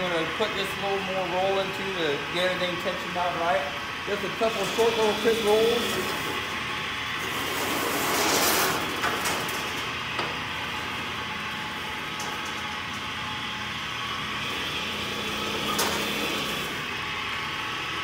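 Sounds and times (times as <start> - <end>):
bandsaw tensioning rolls running: 0.0 - 18.0
scraping: 7.2 - 9.9.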